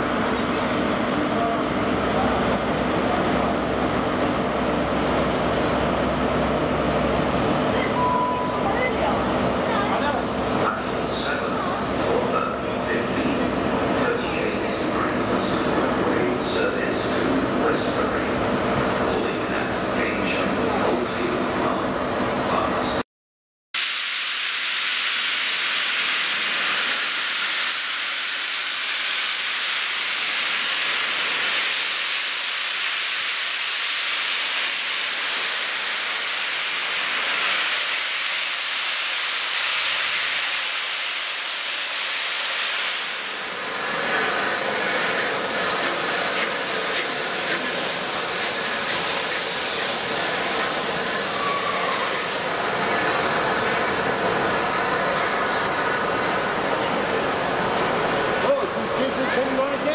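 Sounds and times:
steam locomotive hissing steam: 23.8 - 59.9.

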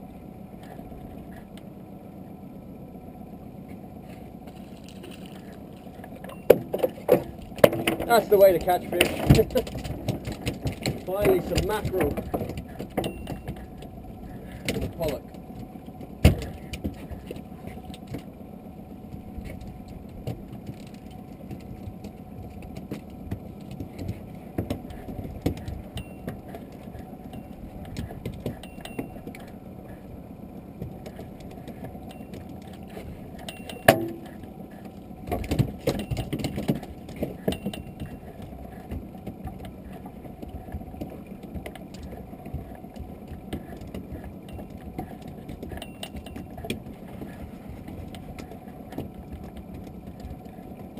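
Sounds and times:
wind and water against hull: 0.0 - 50.9
knocks and rattles in boat: 3.7 - 50.9
handling noise: 4.0 - 50.9.

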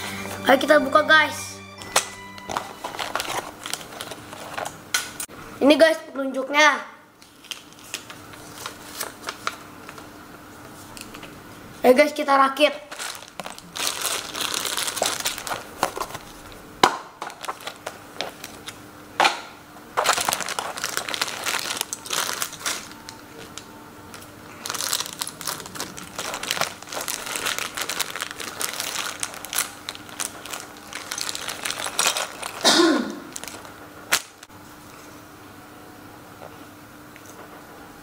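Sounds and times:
plastic bags crinkling: 2.4 - 4.8, 12.8 - 16.6, 17.2 - 18.8, 20.0 - 34.5.

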